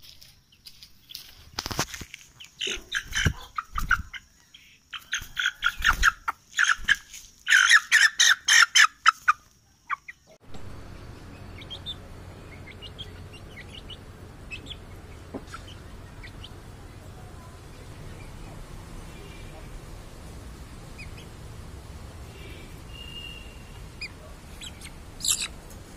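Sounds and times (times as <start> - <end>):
hen clucking and squawking: 2.6 - 4.3, 5.0 - 10.4, 11.6 - 16.7
steady low hum: 10.4 - 25.9.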